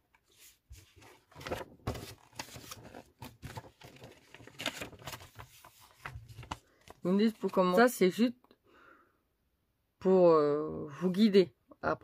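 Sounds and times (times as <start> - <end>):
paper rustling: 0.1 - 8.0.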